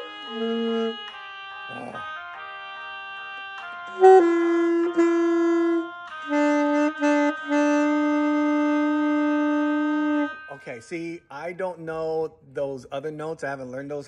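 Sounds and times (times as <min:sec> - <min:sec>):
saxophone notes: 0:00.0 - 0:11.2.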